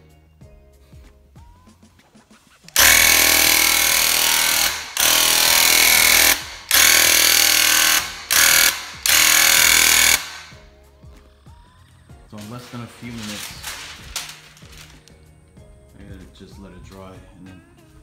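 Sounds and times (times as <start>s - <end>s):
paint sprayer pump buzzing: 2.7s - 10.6s.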